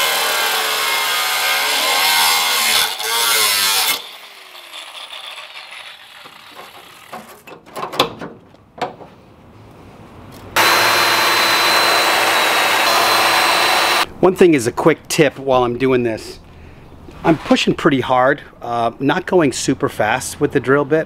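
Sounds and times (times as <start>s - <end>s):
angle grinder grinding steel: 0.0s - 7.2s, 10.6s - 14.1s.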